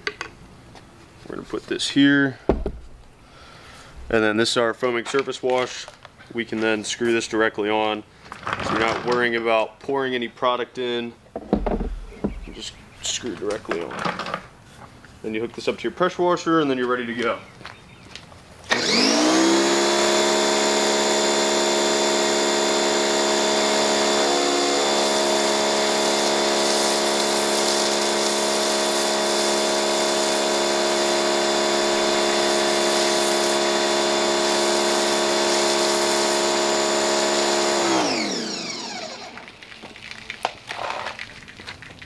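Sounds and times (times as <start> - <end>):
pressure washer motor running: 18.7 - 39.7.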